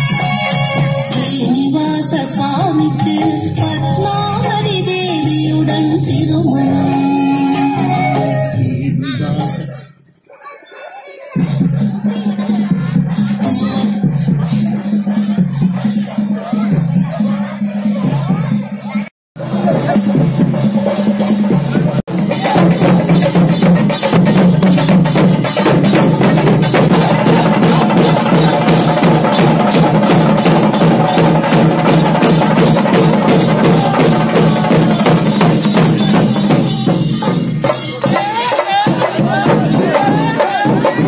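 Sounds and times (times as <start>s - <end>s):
fast drumming on barrel drums: 19.4s - 41.0s.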